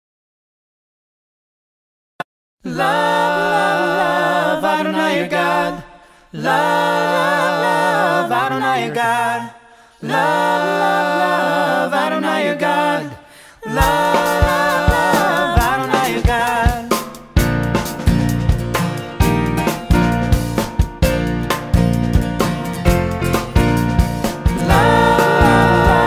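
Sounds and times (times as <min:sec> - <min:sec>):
group singing in harmony: 0:02.6 - 0:17.2, 0:24.3 - 0:26.0
drum kit: 0:13.8 - 0:26.0.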